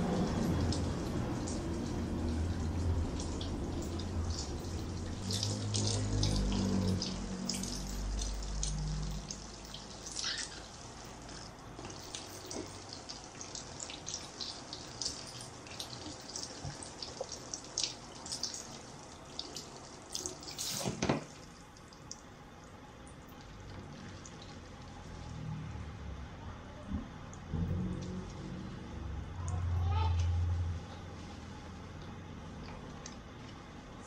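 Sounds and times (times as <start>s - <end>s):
shower head spraying water: 19.6s - 21.2s.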